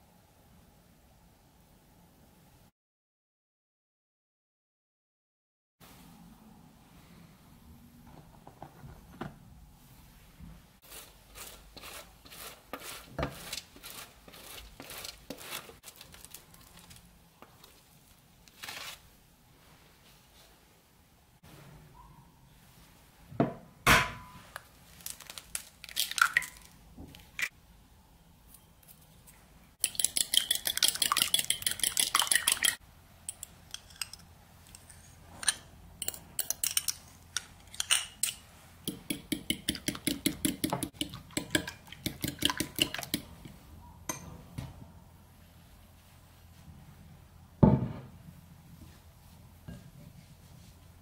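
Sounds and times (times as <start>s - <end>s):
spoon clinking against ceramic bowl: 29.8s - 34.3s.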